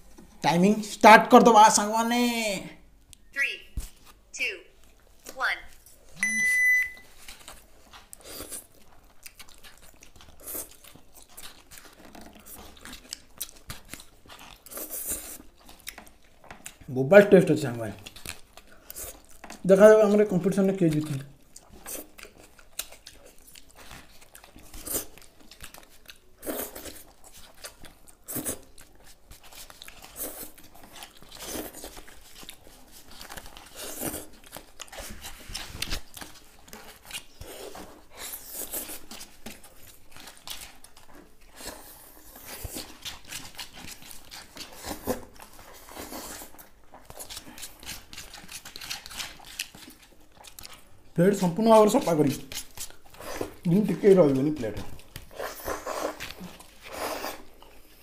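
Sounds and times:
people chewing: 2.9 - 58.0.

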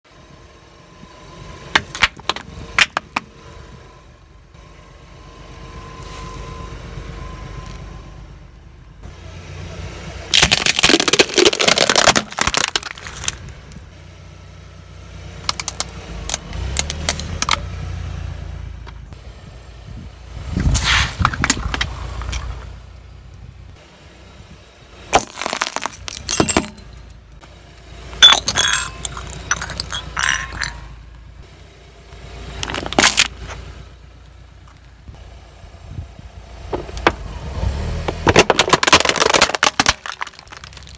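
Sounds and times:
low engine rumble: 0.0 - 40.9
objects crushed by car tyre: 1.7 - 3.2, 10.3 - 13.5, 20.8 - 22.5, 25.1 - 27.0, 28.2 - 30.9, 32.6 - 33.6, 37.9 - 40.9.

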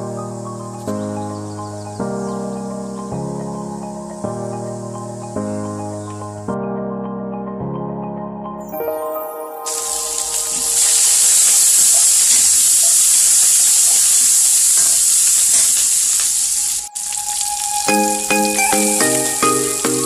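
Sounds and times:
music: 0.0 - 11.4, 16.9 - 20.0
vegetables sizzling in hot oil: 9.7 - 18.6.

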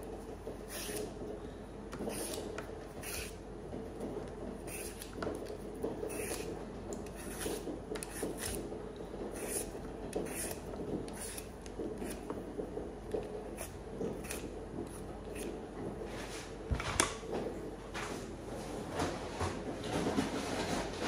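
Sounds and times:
vegetable peeler scraping potato: 0.0 - 1.3, 1.9 - 15.6.

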